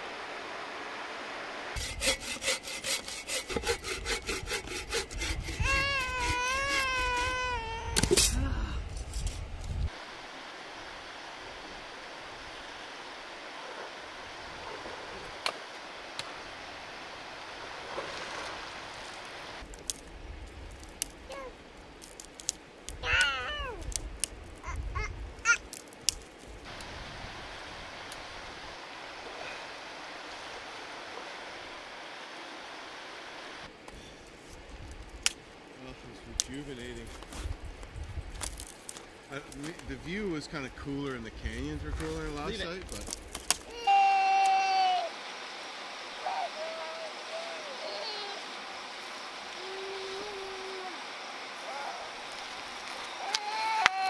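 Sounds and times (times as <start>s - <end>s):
quiet outdoor ambience: 0.0s - 54.0s
hand saw cutting wood: 1.8s - 8.2s
short falling calls: 43.7s - 54.0s
high wavering call: 46.1s - 48.8s.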